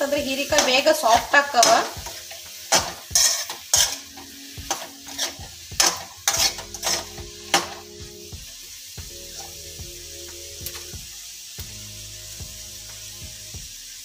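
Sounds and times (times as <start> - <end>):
vegetables frying: 0.0 - 14.0
spoon scraping a frying pan: 0.3 - 8.0.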